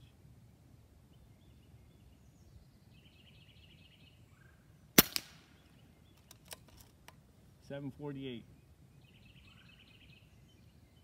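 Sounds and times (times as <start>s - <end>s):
air rifle shot: 5.0s - 5.5s
weaker crack: 5.0s - 5.5s.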